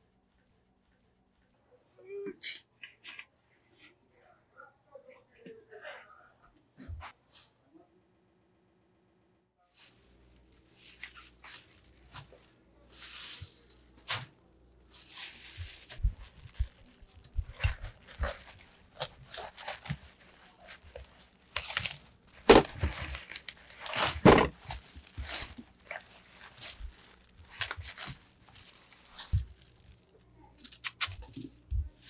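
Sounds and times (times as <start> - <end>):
plastic sheeting crinkling: 9.7 - 32.0
cabbage leaves tearing and crunching: 14.9 - 32.0.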